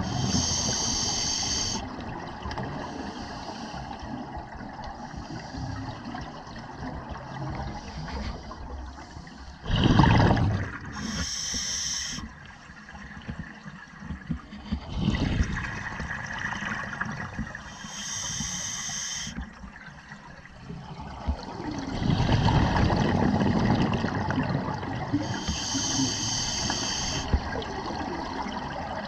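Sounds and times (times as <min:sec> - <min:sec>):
hissing regulator inhale: 0:00.0 - 0:01.9, 0:02.9 - 0:04.0, 0:10.9 - 0:12.3, 0:17.6 - 0:19.4, 0:25.2 - 0:27.4
gurgling exhaled bubbles: 0:09.6 - 0:11.6, 0:14.6 - 0:18.1, 0:20.8 - 0:29.0.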